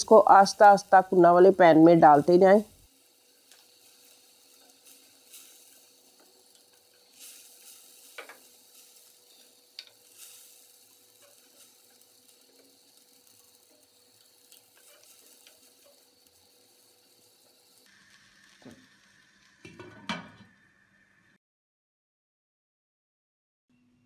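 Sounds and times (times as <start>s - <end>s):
gravy hissing in pot: 0.0s - 21.4s
ladle stirring in pot: 3.2s - 16.4s.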